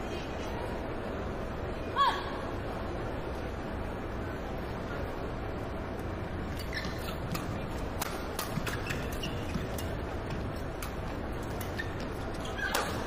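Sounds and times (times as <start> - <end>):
arena crowd noise: 0.0 - 13.0
shoes squeaking on court: 6.4 - 13.0
rackets hitting shuttlecock: 6.6 - 13.0.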